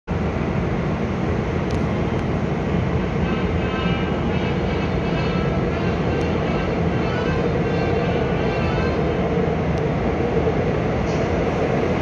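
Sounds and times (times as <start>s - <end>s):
train rumbling in tunnel: 0.1s - 12.0s.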